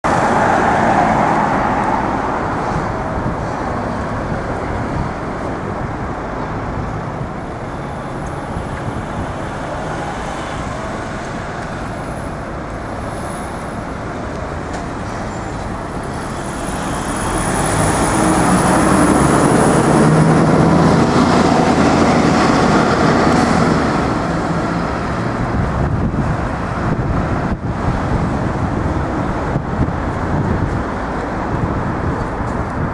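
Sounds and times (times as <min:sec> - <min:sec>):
passing cars and buses: 0:00.0 - 0:32.9.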